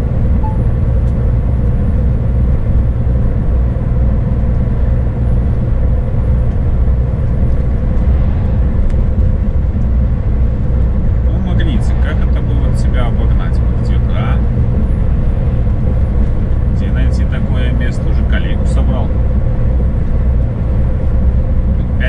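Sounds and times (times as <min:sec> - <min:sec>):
truck engine and road drone: 0:00.0 - 0:22.0.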